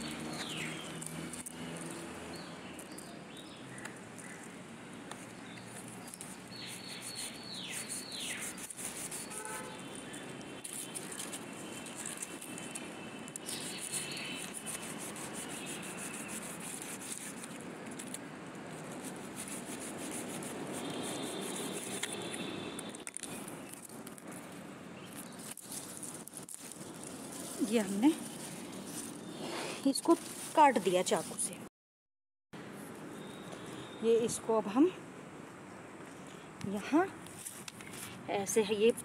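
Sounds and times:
birds chirping: 0.0 - 16.5, 20.8 - 23.9
leaf rustling: 0.0 - 31.6
knife cutting woody stem: 5.1 - 9.5, 10.6 - 18.3, 18.9 - 24.3.

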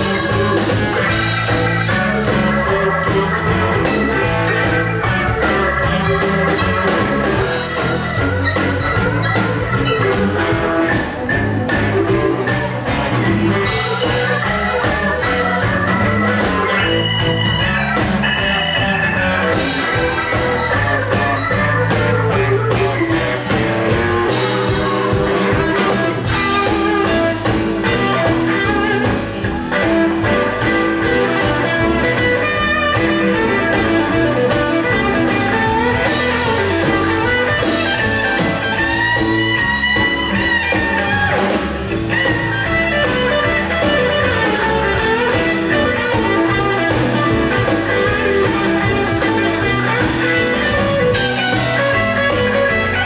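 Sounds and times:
drums steady beat: 0.0 - 53.0
live rockabilly band playing: 0.0 - 53.0.

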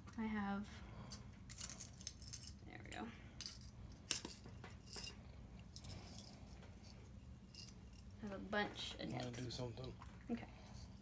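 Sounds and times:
metal nibs rattling in tin: 1.1 - 2.6, 3.4 - 8.4.

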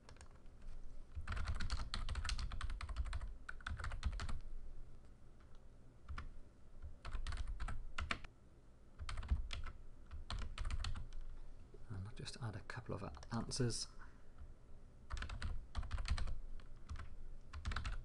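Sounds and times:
typing on computer keyboard: 0.0 - 0.4, 1.1 - 4.4, 5.4 - 8.3, 9.0 - 11.3, 15.1 - 18.0.

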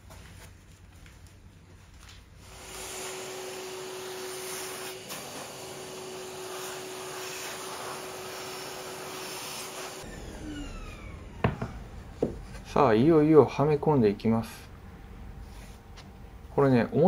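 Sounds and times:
small electric machine whirring: 2.4 - 12.3.

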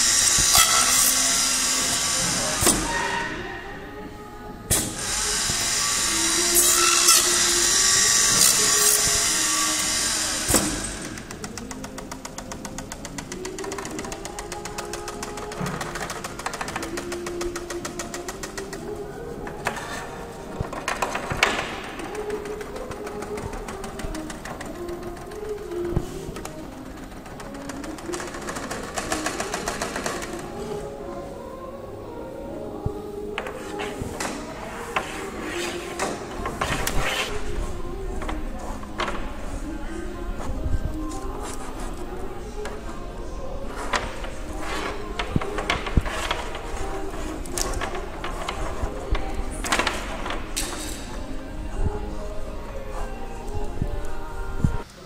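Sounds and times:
background music: 0.0 - 55.0
high-pitched drill-like machine whir: 5.0 - 11.0.

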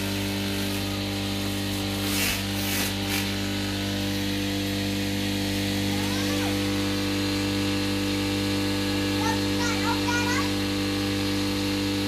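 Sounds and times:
blades shredding greens: 0.0 - 7.4
chopper motor hum: 0.0 - 12.0.

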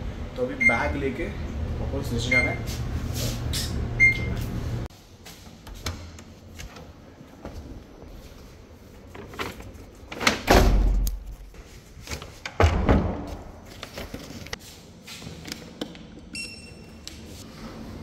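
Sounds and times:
doors thudding shut: 10.3 - 11.1, 12.5 - 13.5.

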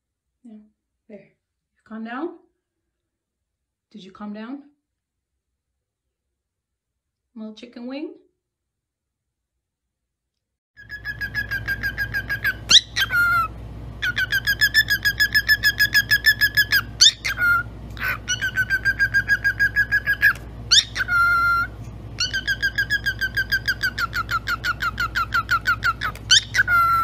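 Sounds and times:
cockatiel chirping: 10.8 - 27.0
cockatiel squeak: 10.8 - 27.0.

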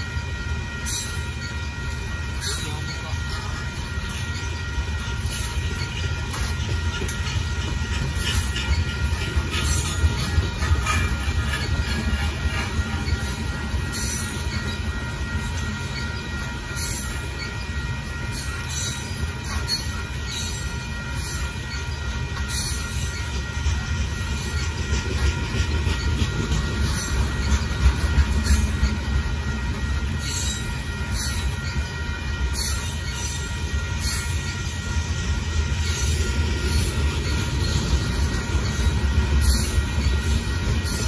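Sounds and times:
train wheels rumbling on rail: 0.0 - 41.0.

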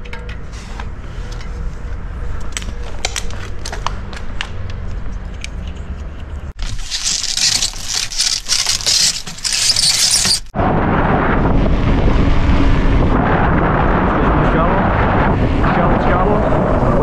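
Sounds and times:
tyres and traffic rumble: 0.0 - 10.5
plastic shrink-wrap crackling: 6.6 - 10.5
wind on microphone: 10.5 - 17.0.

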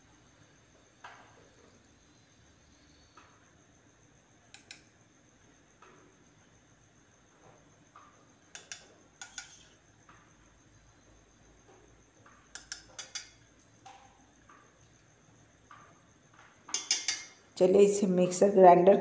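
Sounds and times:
clicks and knocks of kitchenware: 8.5 - 9.7, 12.5 - 14.1, 16.7 - 17.4.

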